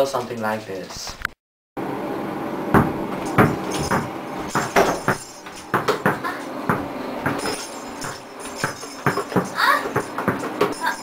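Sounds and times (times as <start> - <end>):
basketball bouncing on hard floor: 2.7 - 10.9.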